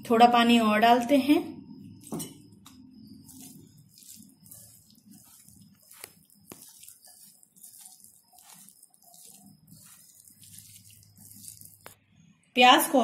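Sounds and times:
wet squelching of batter: 2.6 - 12.0.

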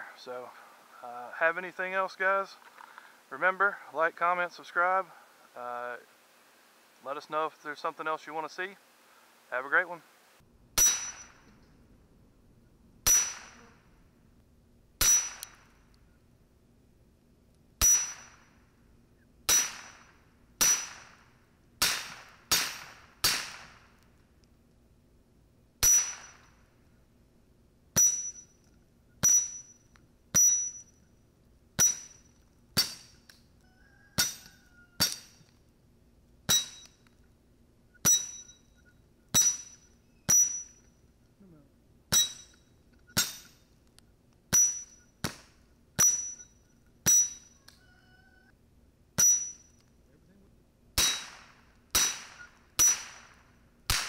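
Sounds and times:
rifle shots with metallic ring: 10.8 - 11.7, 13.0 - 13.9, 15.0 - 15.8, 17.8 - 18.6, 19.5 - 23.8, 25.8 - 26.7, 28.0 - 31.0, 31.8 - 33.2, 36.5 - 37.0, 38.0 - 40.9, 42.1 - 43.7, 44.5 - 45.2, 46.0 - 47.6, 49.2 - 49.8, 51.0 - 54.0.

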